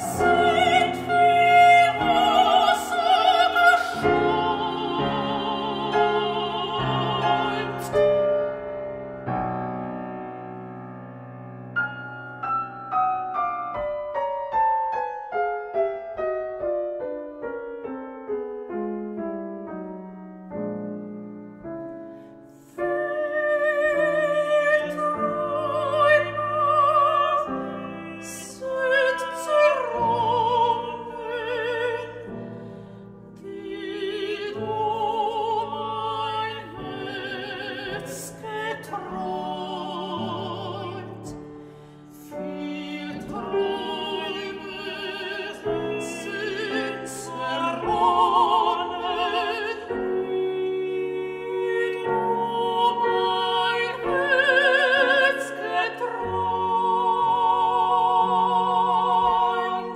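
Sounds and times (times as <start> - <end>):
women singing a classical duet: 0.0 - 9.3, 22.3 - 59.9
piano accompaniment: 0.0 - 59.9.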